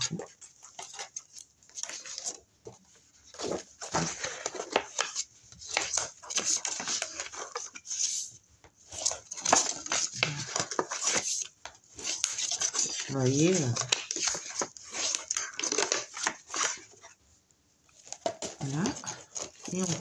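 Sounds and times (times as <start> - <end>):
cardstock scraping and rustling: 0.0 - 17.2, 17.9 - 20.0.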